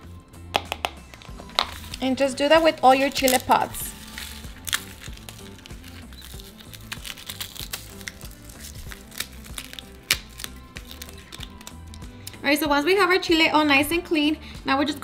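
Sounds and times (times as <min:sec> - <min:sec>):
background music: 0:00.0 - 0:15.0
dried chile pods crackling: 0:00.8 - 0:12.6.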